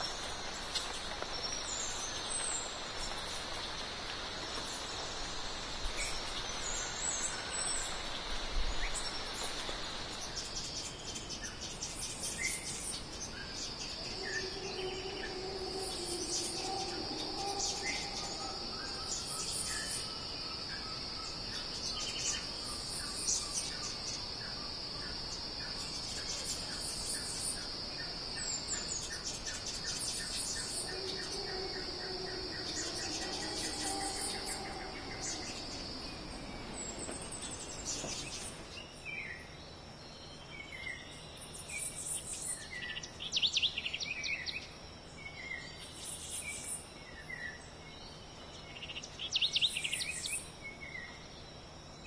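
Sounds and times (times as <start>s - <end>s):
insect drone: 0.0s - 52.0s
soft hiss: 0.0s - 52.0s
distant low bird calls: 13.0s - 21.4s, 29.7s - 38.8s.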